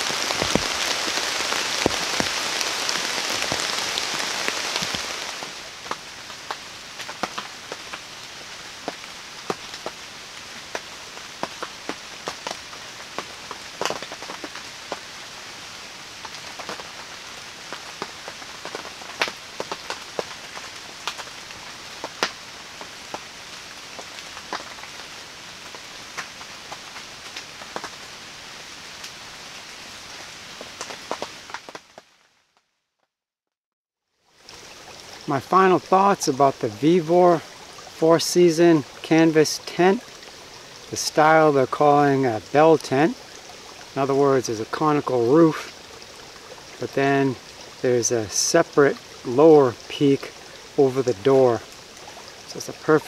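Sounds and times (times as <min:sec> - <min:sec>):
raindrops tapping on canvas: 0:00.0 - 0:08.1, 0:10.7 - 0:15.0, 0:17.6 - 0:21.4
rain hissing in forest: 0:00.0 - 0:32.7, 0:34.1 - 0:53.0.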